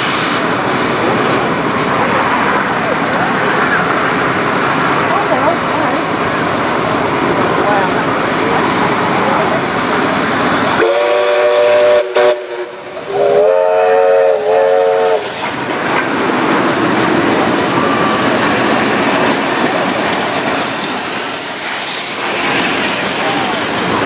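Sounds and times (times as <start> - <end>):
steam trains passing: 0.0 - 24.0
steam locomotive chime whistle: 10.8 - 15.3.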